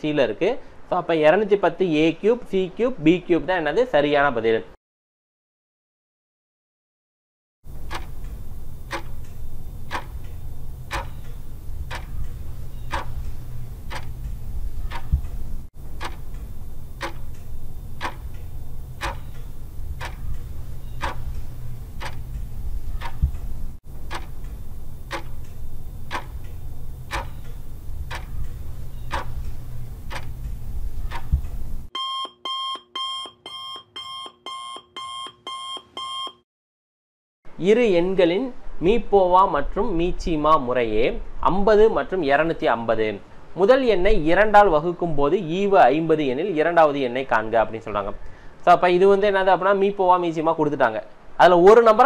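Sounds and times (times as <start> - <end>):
clock ticking: 7.7 - 31.9
low hum: 7.7 - 31.9
two-tone electronic alarm beeping: 7.9 - 14.2, 24.1 - 30.3, 31.0 - 36.4.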